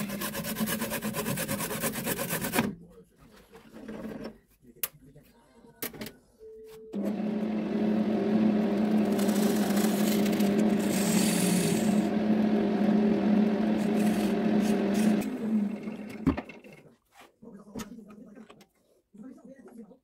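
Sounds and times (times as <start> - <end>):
gouge scraping spinning wood: 0.0 - 2.6, 8.6 - 16.4
wood lathe motor hum: 7.0 - 16.4.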